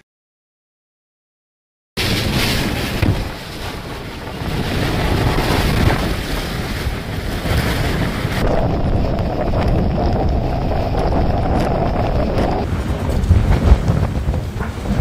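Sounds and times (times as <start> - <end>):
strong wind on microphone: 2.0 - 15.0.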